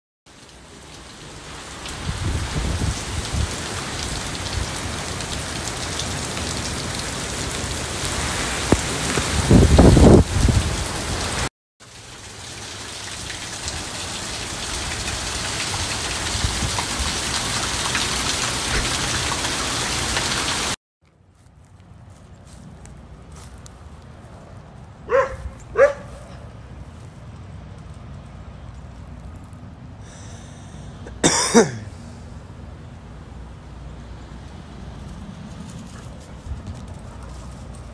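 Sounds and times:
heavy rain pouring: 0.3 - 20.8
wind buffeting microphone: 2.0 - 3.6, 8.7 - 11.0.

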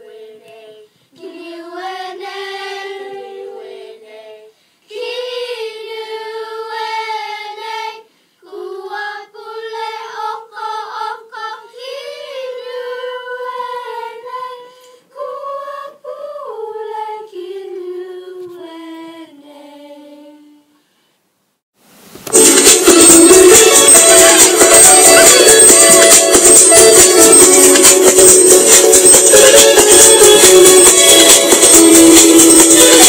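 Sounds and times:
children's choir singing: 0.0 - 20.7, 22.4 - 33.0
loud music with shakers: 22.3 - 33.0.

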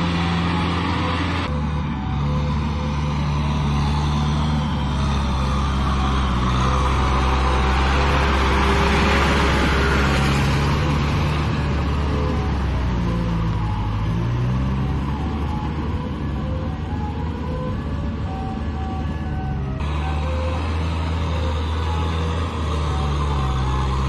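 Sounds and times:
tractor diesel engine running: 0.0 - 24.0
tiller churning mud: 2.5 - 12.7.

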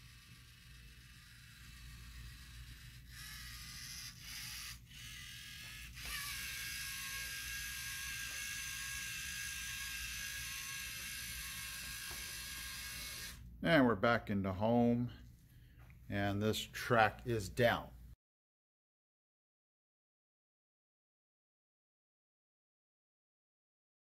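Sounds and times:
robot motors and gears whirring: 0.0 - 13.4.

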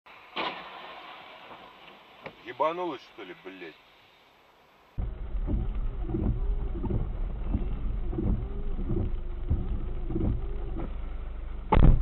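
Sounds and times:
thump against windshield: 5.0 - 11.0, 11.7 - 12.0
low rumble inside car: 5.0 - 12.0.

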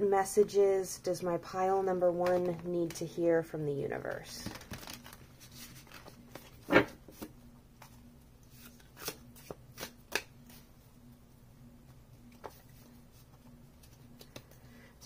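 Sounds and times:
cards shuffled by hand: 4.4 - 10.6.

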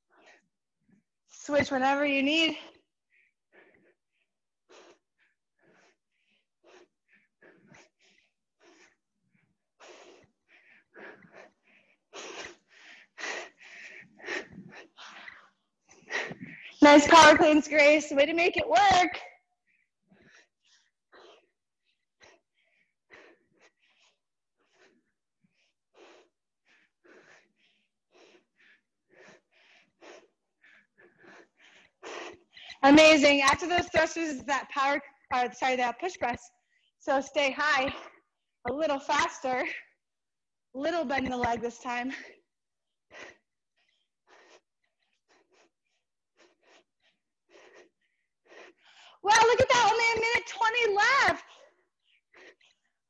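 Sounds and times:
woman breathing hard: 2.6 - 18.1, 18.9 - 34.5, 42.0 - 50.4.

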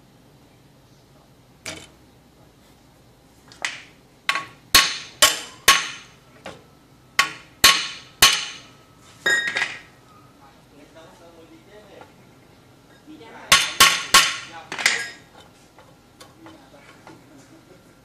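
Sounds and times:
metal knocks on steel clamps: 7.2 - 8.7.

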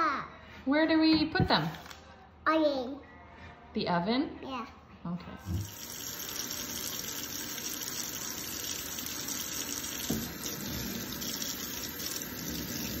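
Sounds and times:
faucet water splashing into sink: 5.4 - 13.0
knock: 10.1 - 10.3.

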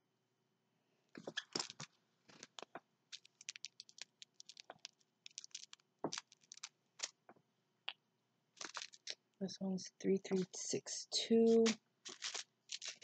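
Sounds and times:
plastic bags crinkling: 1.2 - 7.2, 8.6 - 9.2, 10.3 - 10.5, 11.5 - 13.0.

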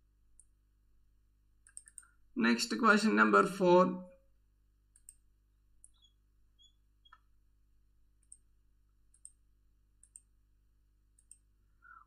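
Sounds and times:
computer mouse clicks: 0.3 - 0.6, 1.6 - 2.2, 4.9 - 7.3, 8.2 - 10.4, 11.1 - 11.5.

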